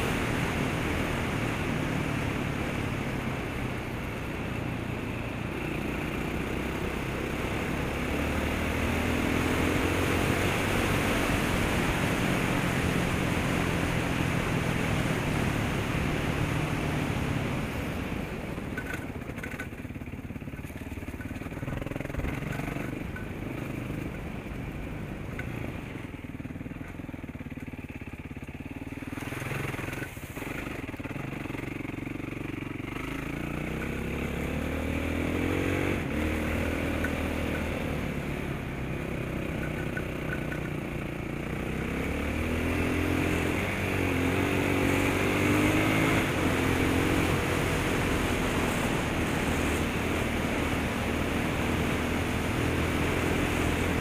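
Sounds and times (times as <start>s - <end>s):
dirt bike engine revving: 32.4s - 39.6s, 41.5s - 54.0s.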